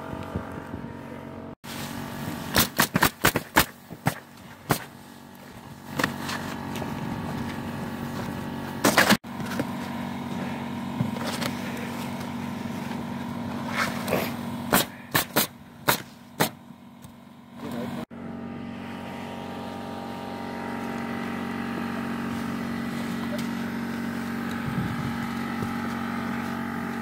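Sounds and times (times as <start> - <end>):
steady machine hum: 0.0 - 27.0
nail gun firing: 2.5 - 4.9, 14.7 - 16.6.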